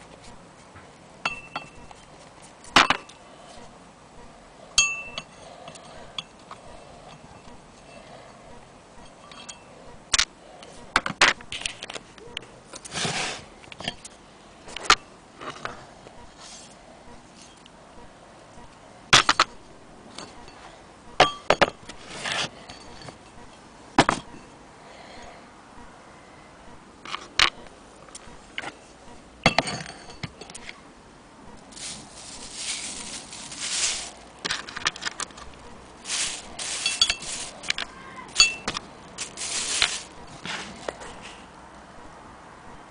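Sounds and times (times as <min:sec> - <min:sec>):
plastic bag crinkling: 0:31.7 - 0:37.8, 0:39.1 - 0:40.3
metal parts clicking and knocking: 0:31.7 - 0:40.1.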